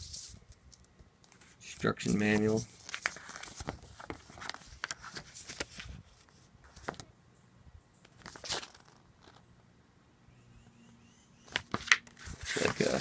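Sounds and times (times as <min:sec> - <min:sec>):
paper booklet rustling: 0:00.0 - 0:00.6, 0:01.3 - 0:07.1, 0:08.2 - 0:09.4, 0:11.5 - 0:13.0.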